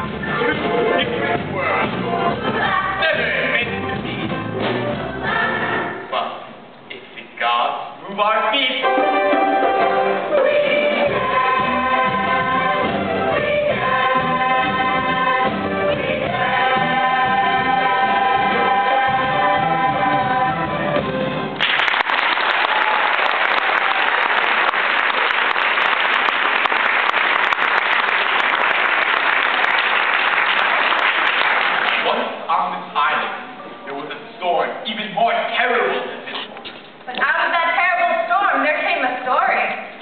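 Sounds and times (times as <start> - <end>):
chorus singing: 0.0 - 6.1, 8.8 - 21.2
instrumental backing: 8.8 - 21.6
audience applause: 21.6 - 32.2.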